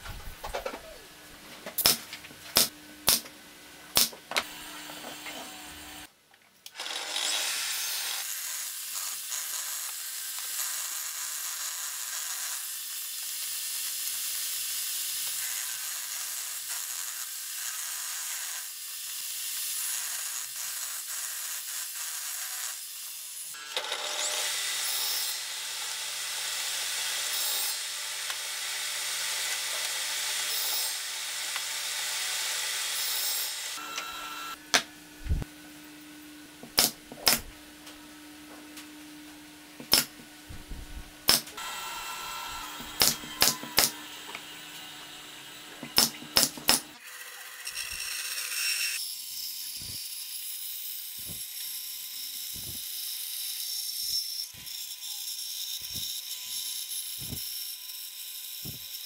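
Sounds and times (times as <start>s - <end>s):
power tool working wood: 4.4s - 6.1s, 23.5s - 35.4s, 39.8s - 49.0s, 54.6s - 59.0s.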